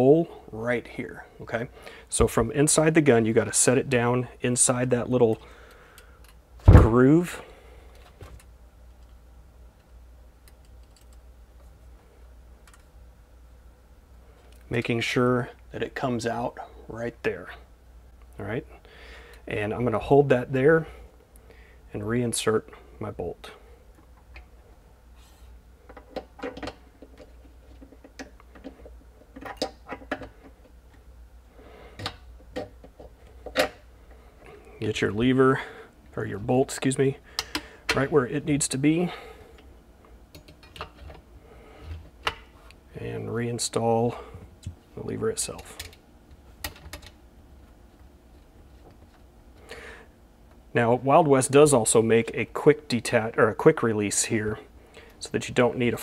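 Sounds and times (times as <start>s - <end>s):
low steady hum: 0.0s - 56.0s
small metal parts clicking: 10.4s - 11.2s.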